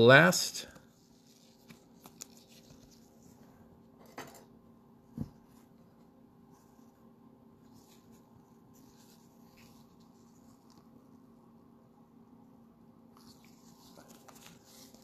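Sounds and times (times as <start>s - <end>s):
low steady hum: 0.0s - 15.0s
trading cards rustling: 0.8s - 3.4s, 13.2s - 15.0s
soft thump on table: 5.1s - 5.4s.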